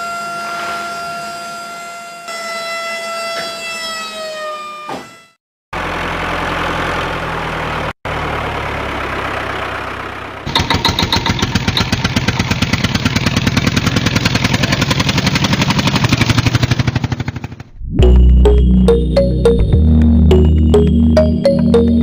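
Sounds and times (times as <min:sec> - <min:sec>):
engine running: 0:05.8 - 0:22.0.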